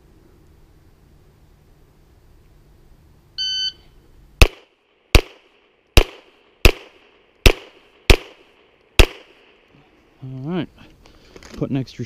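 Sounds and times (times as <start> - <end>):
shot timer beep: 3.4 - 3.9
pistol shots with echo: 4.4 - 9.7.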